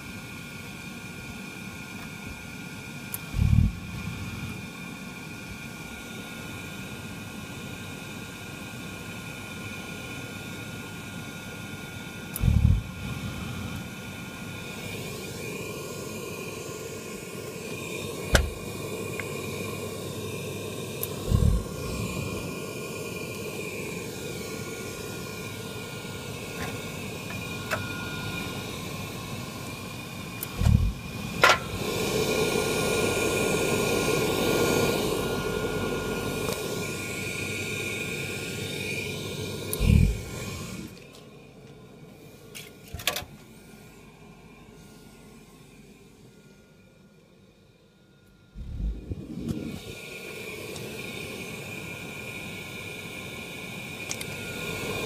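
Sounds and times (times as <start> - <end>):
boiler fan motor whine: 0.0 - 55.0.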